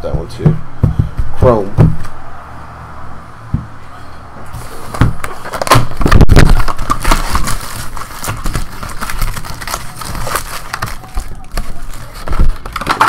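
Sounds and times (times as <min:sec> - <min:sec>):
cardboard and wrappers crinkling: 0:04.5 - 0:13.0.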